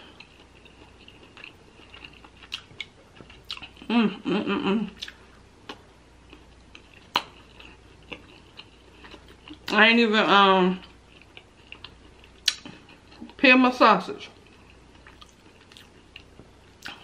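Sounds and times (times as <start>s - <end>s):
close chewing and mouth sounds: 0.0s - 3.9s, 4.9s - 9.8s, 10.7s - 13.4s, 14.3s - 17.0s
person humming mmm: 3.8s - 5.1s.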